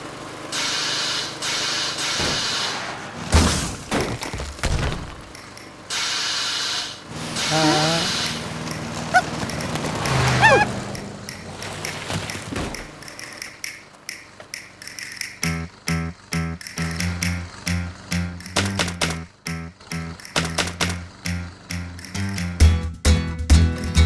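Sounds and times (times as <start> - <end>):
squeaky cartoon character vocalisations: 7.4 - 8.4, 10.3 - 10.7.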